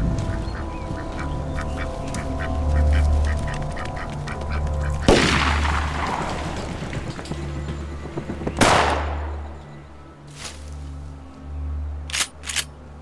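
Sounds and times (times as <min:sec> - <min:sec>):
shotgun blasts with echo: 0:05.1 - 0:07.2, 0:08.2 - 0:09.6.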